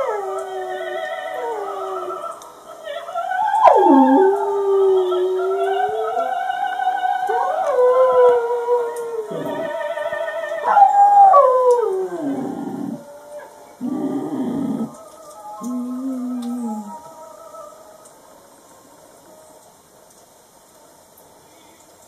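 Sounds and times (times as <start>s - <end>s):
dog howling: 0.0s - 2.3s, 3.4s - 17.7s
opera singing with vibrato: 0.0s - 18.0s.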